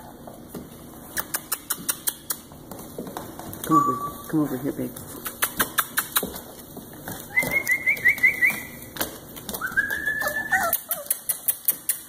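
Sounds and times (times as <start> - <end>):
puppies whining: 5.6 - 12.0.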